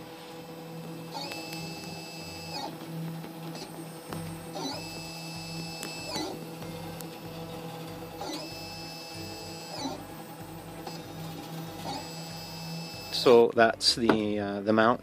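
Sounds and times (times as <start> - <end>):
cooling fans humming: 0.0 - 13.6
stepper motors whining: 0.4 - 13.3.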